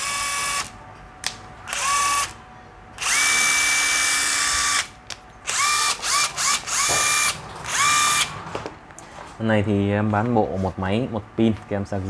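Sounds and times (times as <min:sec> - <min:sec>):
impact driver motor whine: 0:00.0 - 0:00.7, 0:01.7 - 0:02.4, 0:03.0 - 0:04.9, 0:05.5 - 0:08.3.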